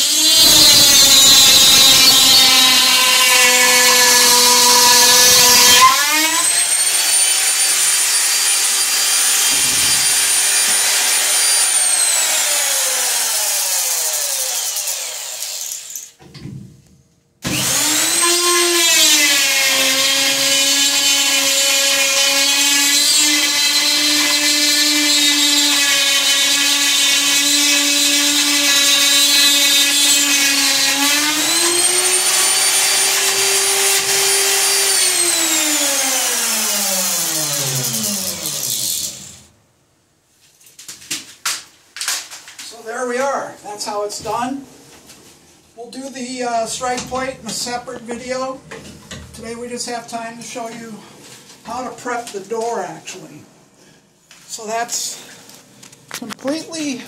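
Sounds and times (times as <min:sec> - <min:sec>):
electric router whining: 0:00.0 - 0:15.9, 0:17.5 - 0:39.4.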